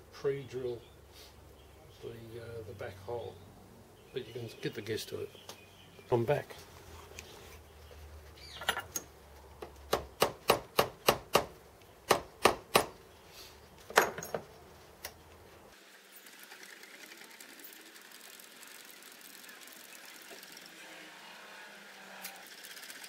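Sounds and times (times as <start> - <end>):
milling machine motor running: 15.8 - 23.0.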